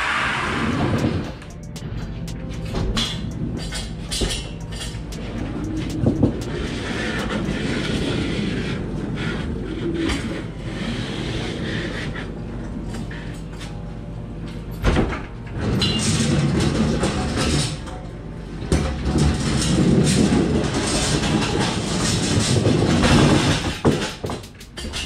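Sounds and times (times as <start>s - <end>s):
lorry engine drone: 0.0s - 20.8s
rattles and knocks: 18.8s - 25.0s.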